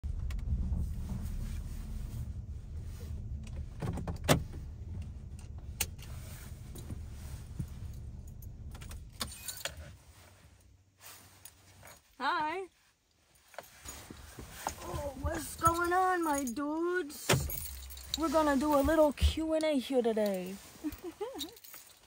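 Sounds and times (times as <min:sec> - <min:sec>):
engine and road rumble: 0:00.0 - 0:22.0
car keys jingling: 0:04.1 - 0:12.2, 0:13.2 - 0:22.0.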